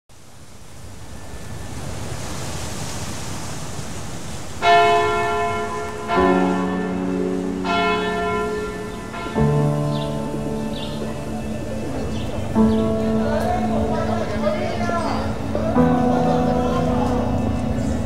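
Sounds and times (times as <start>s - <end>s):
sea surf: 0.1s - 18.0s
church bells ringing: 4.6s - 18.0s.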